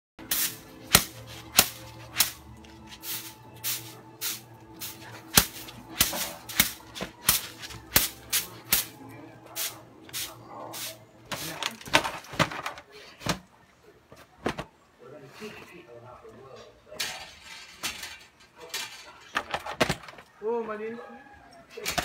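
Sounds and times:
broom sweeping concrete: 0.2s - 12.0s.

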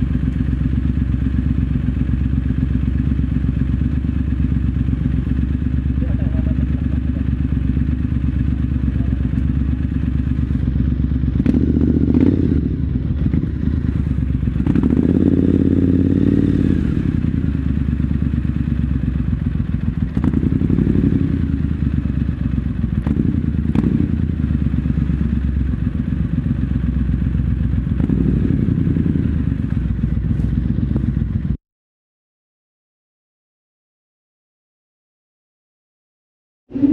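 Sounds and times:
motorcycle engine revving: 0.0s - 31.6s.

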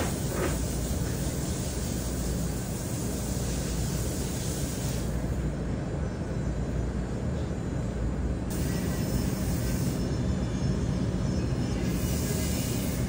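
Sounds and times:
faint hiss: 0.0s - 5.4s.

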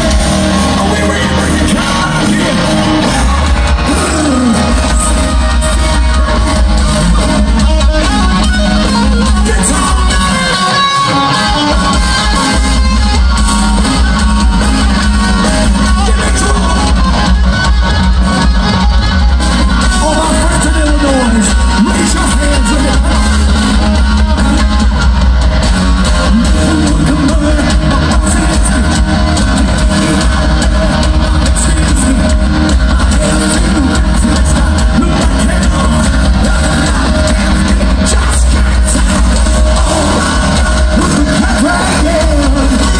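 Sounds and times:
distorted electric guitar: 0.0s - 42.9s
heavy bass: 0.0s - 42.9s
live rock band playing: 0.0s - 42.9s
pounding drums with cymbals: 11.5s - 42.9s.

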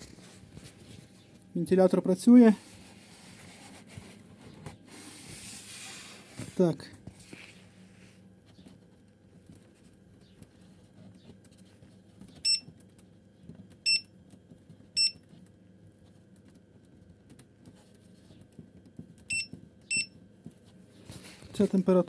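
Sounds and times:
short electronic beeps: 12.4s - 12.6s, 19.3s - 20.1s.

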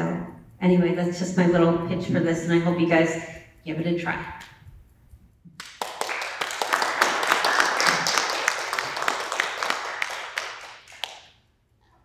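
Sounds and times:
audience applauding: 5.6s - 11.3s.

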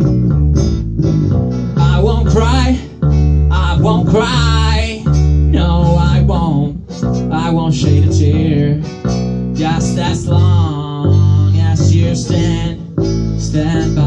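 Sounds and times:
bass notes: 0.0s - 14.0s
strummed acoustic guitar: 0.0s - 14.0s
person singing: 1.8s - 9.0s, 9.6s - 14.0s.

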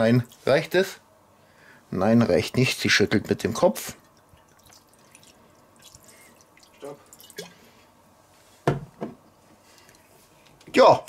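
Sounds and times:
wine pouring from bottle: 3.9s - 7.7s
liquid splashing onto meat: 4.0s - 7.6s.

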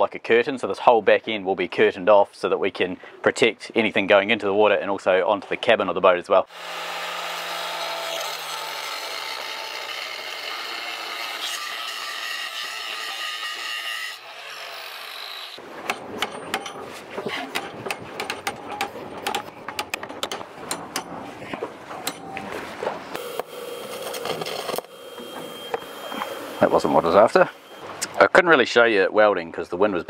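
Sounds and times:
angle grinder cutting steel: 6.5s - 15.6s, 23.2s - 27.9s
hammer striking steel: 15.8s - 21.2s, 22.0s - 22.4s.

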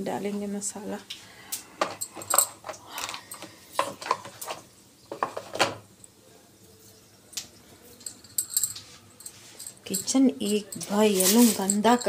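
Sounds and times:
kitchen containers and lids clinking: 1.8s - 5.9s, 8.0s - 12.0s.

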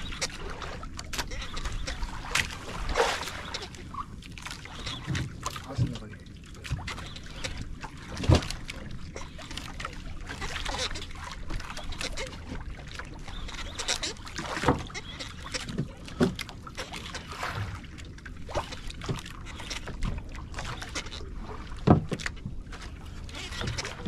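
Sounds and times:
water slapping against boat hull: 0.0s - 24.0s
knocks and thuds on hull: 4.4s - 17.8s, 18.5s - 24.0s.

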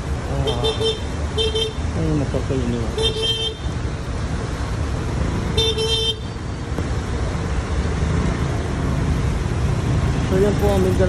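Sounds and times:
roadway rumble: 0.0s - 11.0s
car horn toot: 5.6s - 6.3s
vehicle engines running: 6.2s - 11.0s.

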